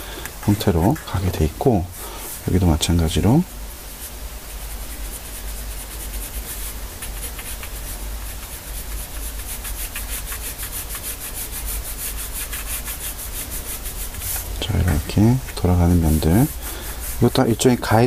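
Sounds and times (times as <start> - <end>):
pencil scratching on paper: 4.8 - 18.0.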